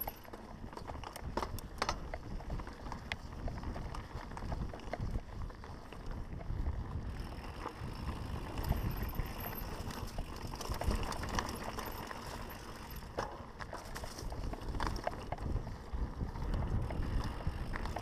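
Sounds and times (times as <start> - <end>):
small clicks and knocks: 0.0 - 2.5
bike frame rattling: 0.0 - 18.0
tyres on dirt and rocks: 0.0 - 18.0
wind rumble on microphone: 0.0 - 18.0.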